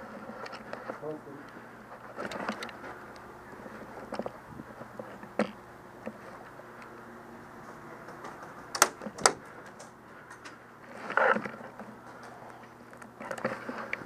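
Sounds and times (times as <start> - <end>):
faint steady hum: 0.0 - 14.0
sharp clicks and knocks: 8.0 - 10.6.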